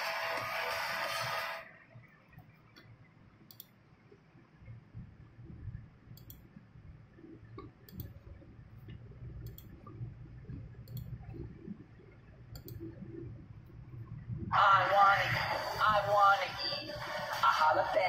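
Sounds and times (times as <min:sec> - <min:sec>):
faint low rumble: 0:01.7 - 0:18.0
computer mouse clicking: 0:03.5 - 0:03.8, 0:06.1 - 0:06.5, 0:07.5 - 0:08.2, 0:08.8 - 0:10.0, 0:10.8 - 0:11.5, 0:12.5 - 0:13.0.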